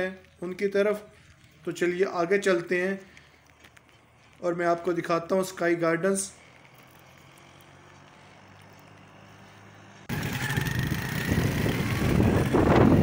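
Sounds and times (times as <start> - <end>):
motorcycle riding over gravel: 6.4 - 13.0
wind on microphone: 10.1 - 13.0.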